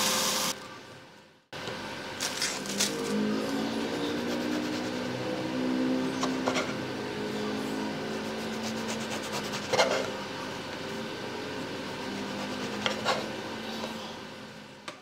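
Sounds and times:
knife sawing through bread: 8.2s - 9.9s, 12.1s - 13.2s.

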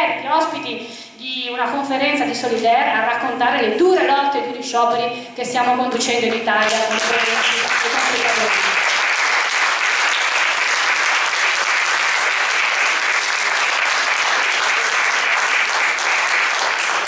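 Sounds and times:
audience applause: 6.9s - 17.0s.

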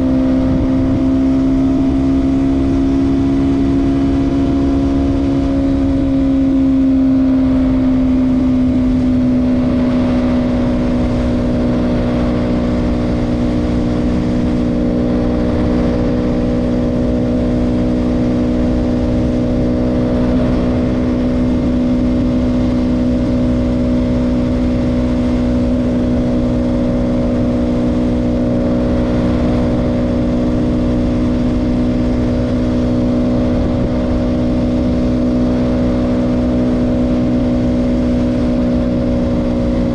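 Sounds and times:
motorcycle engine cruising: 0.0s - 39.9s.

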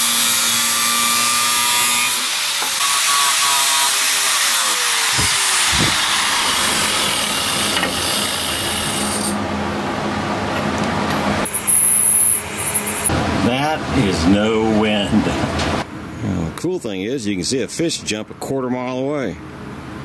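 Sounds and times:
angle grinder cutting steel pipe: 0.0s - 9.4s, 11.4s - 13.1s.

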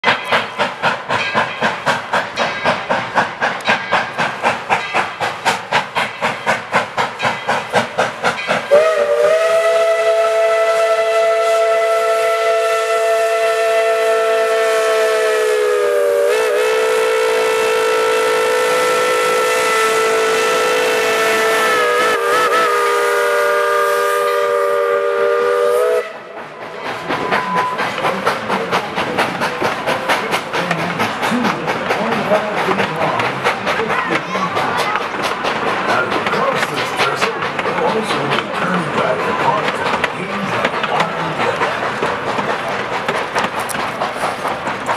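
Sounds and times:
steam locomotive chuffing: 0.0s - 44.9s
steam whistle chord: 8.7s - 26.4s.

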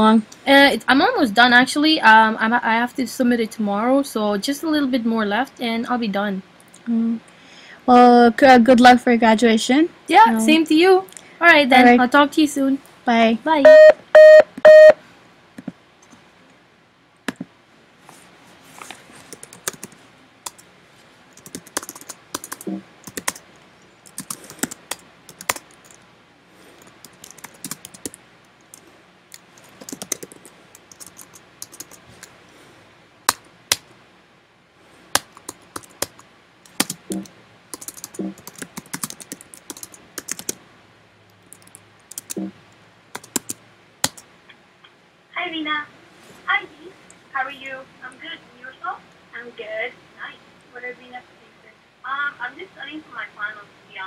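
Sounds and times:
short electronic beeps: 13.6s - 15.0s
typing on computer keyboard: 19.3s - 20.6s, 21.4s - 23.4s, 24.0s - 26.0s, 26.8s - 32.3s, 35.2s - 40.6s, 41.4s - 42.5s, 43.1s - 44.2s.

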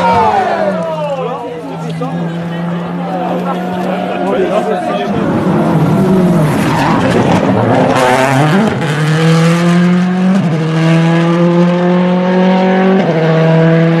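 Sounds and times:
race car accelerating past: 2.1s - 14.0s.

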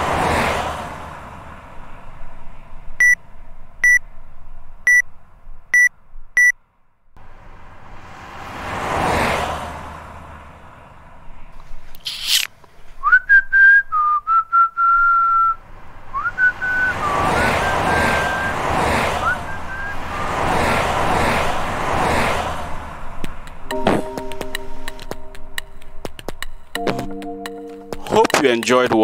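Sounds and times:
person whistling a tune: 13.0s - 15.6s, 16.2s - 18.6s, 19.2s - 20.0s.

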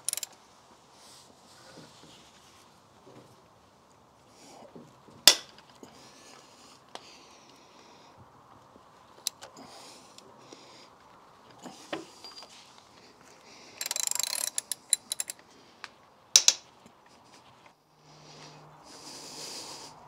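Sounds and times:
socket ratchet clicking: 0.0s - 0.4s, 9.2s - 9.5s, 13.8s - 15.4s.

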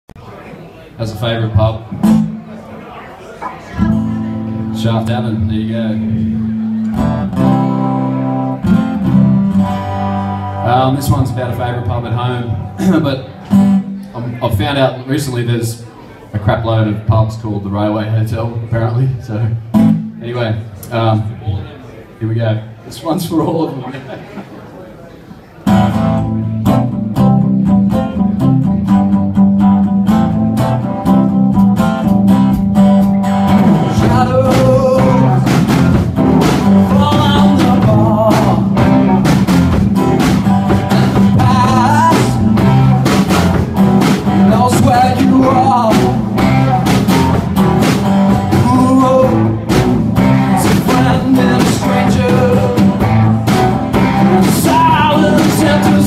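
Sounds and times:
strummed acoustic guitar: 1.5s - 2.6s, 3.8s - 14.9s, 19.6s - 20.2s, 25.6s - 56.0s
electric guitar: 3.6s - 14.2s, 25.7s - 56.0s
electric bass: 3.8s - 13.9s, 25.7s - 56.0s
man singing: 10.6s - 13.3s, 33.5s - 39.2s, 40.8s - 42.8s, 44.3s - 46.6s, 48.3s - 56.0s
drum kit: 25.7s - 56.0s.

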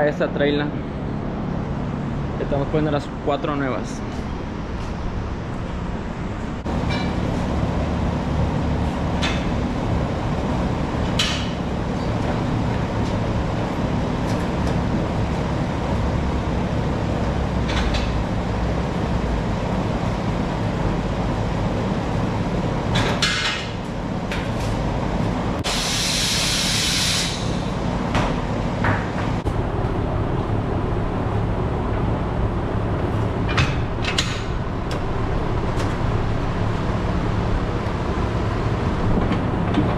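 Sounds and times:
compressed air hiss: 25.6s - 27.7s
machine hum: 27.2s - 39.9s.

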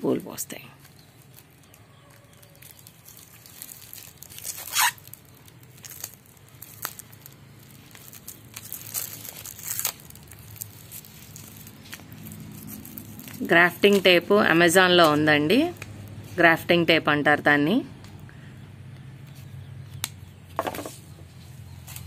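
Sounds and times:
plastic tape crinkling: 0.8s - 16.3s, 21.7s - 22.0s.

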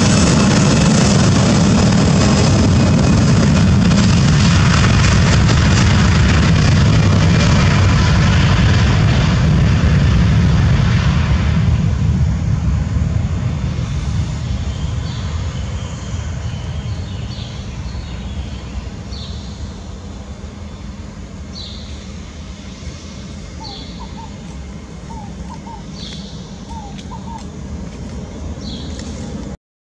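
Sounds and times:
jet engine rumble: 0.0s - 29.6s
bird chirping: 23.5s - 27.5s, 28.6s - 29.1s.

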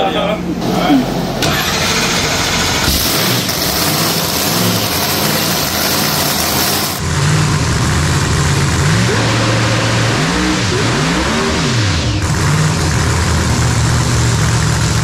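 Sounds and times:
engine throttle blips: 1.1s - 15.0s
drag car engine idling: 1.3s - 9.0s, 12.2s - 15.0s.

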